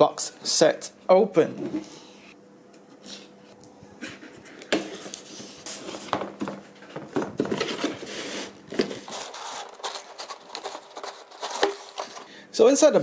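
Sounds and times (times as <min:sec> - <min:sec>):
cardboard scraping and rustling: 0:04.6 - 0:12.2.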